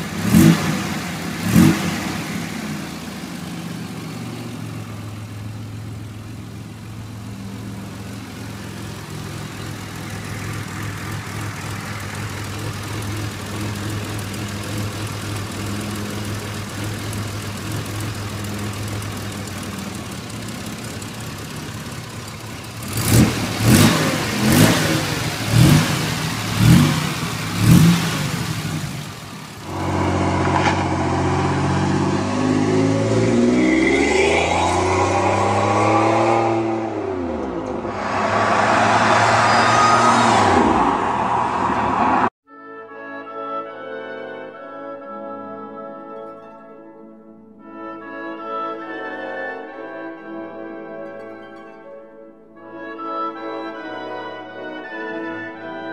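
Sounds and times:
engine revving sharply: 0.0s - 2.8s, 22.8s - 42.4s
car engine idling: 0.0s - 31.7s
car engine driving along: 0.0s - 42.4s.

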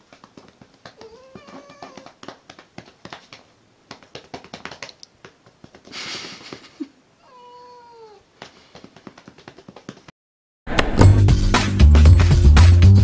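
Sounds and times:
hand slapping cat: 0.0s - 6.8s, 8.4s - 10.1s
cat meowing: 1.0s - 2.2s, 7.2s - 8.3s.

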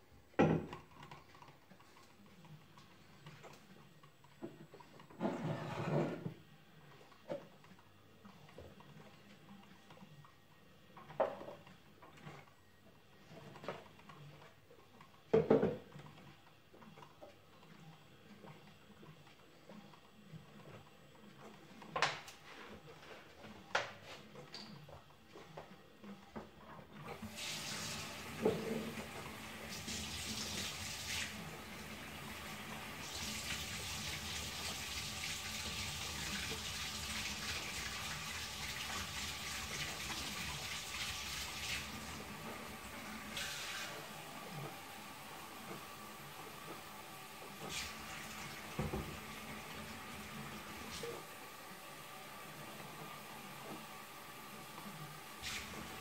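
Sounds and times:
coffee maker brewing hiss: 0.0s - 9.8s, 10.5s - 11.7s, 15.3s - 16.4s, 27.1s - 56.0s
kitchen items knocking and clattering: 0.4s - 0.9s.

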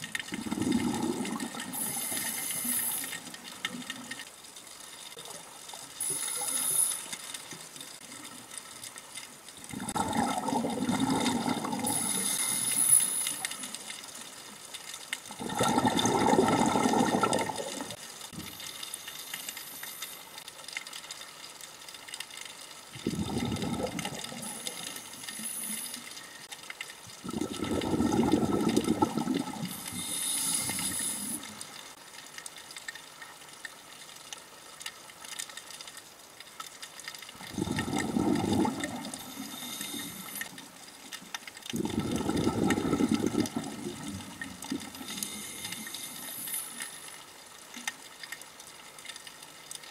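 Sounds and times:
exhaled bubbles rumbling: 0.0s - 2.2s, 9.6s - 12.2s, 15.3s - 18.0s, 22.9s - 25.0s, 27.2s - 31.6s, 37.3s - 40.3s, 41.7s - 45.6s.

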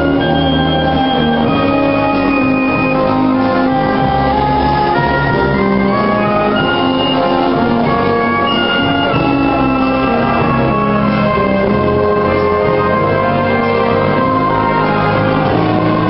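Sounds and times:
orchestra playing ball music: 0.0s - 16.0s.

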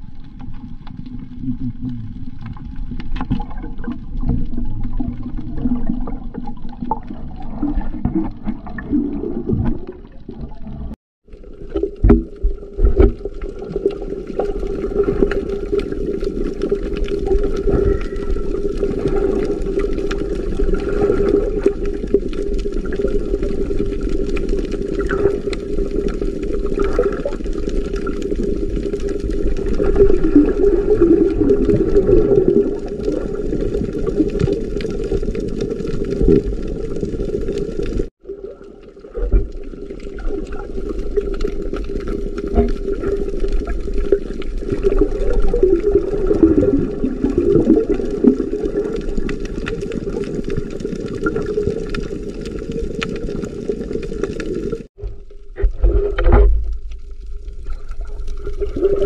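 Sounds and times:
muffled underwater rushing: 0.0s - 59.0s.

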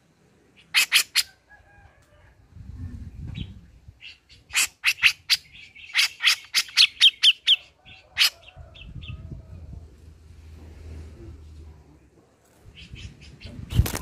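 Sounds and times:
low rustling: 9.6s - 12.8s.

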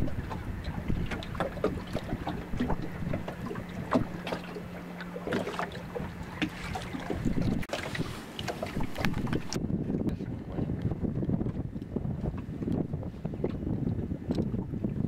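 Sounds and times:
water slapping against boat hull: 0.0s - 15.0s
wind buffeting microphone: 0.0s - 15.0s.

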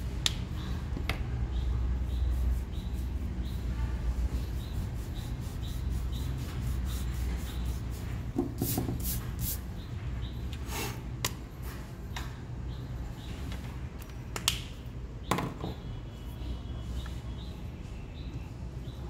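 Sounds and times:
steady low hum: 0.0s - 10.5s
eraser rubbing on paper: 2.0s - 9.6s.

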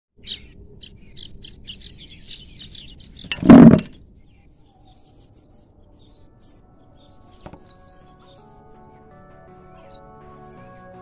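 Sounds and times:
small birds chirping: 0.2s - 11.0s
plastic basin dropping on concrete: 3.3s - 4.0s.

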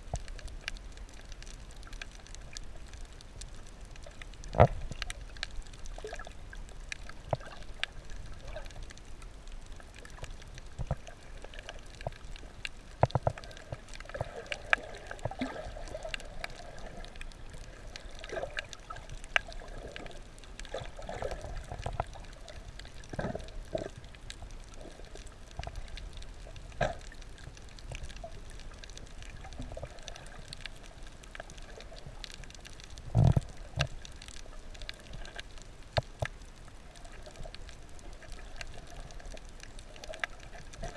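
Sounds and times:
sharp clicks and crackles: 0.0s - 40.9s
underwater water noise and gurgling: 0.0s - 40.9s.

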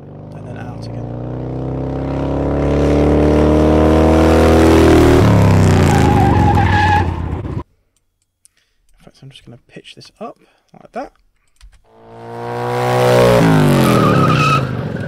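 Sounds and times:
motorcycle engine revving: 0.0s - 7.6s, 11.9s - 15.0s.

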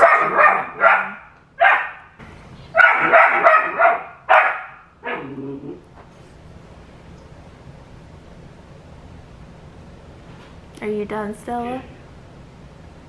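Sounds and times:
puppy barking: 0.0s - 5.4s
dog grumbling: 5.0s - 5.9s.

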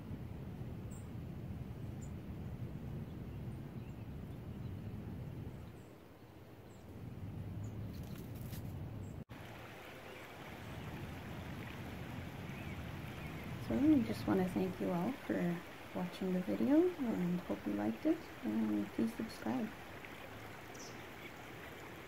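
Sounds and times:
steady low rumble: 6.7s - 21.0s.

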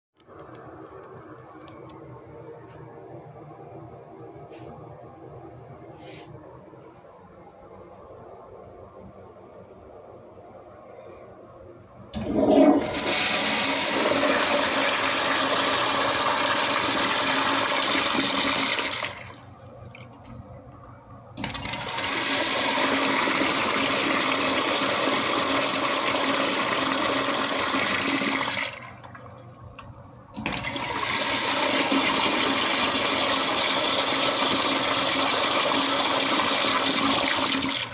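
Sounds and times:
toilet flushing: 12.1s - 20.7s, 21.4s - 37.9s.

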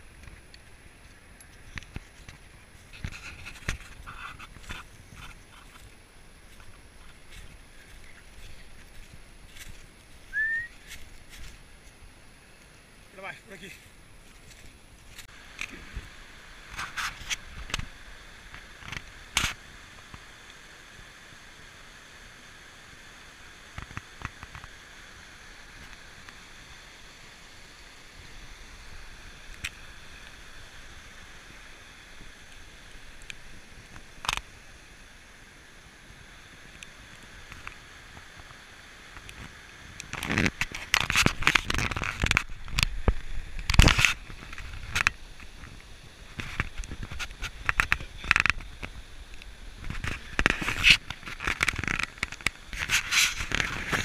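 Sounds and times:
faint steady hiss: 0.0s - 54.0s
twigs and leaves crackling underfoot: 0.1s - 20.1s, 36.6s - 54.0s.

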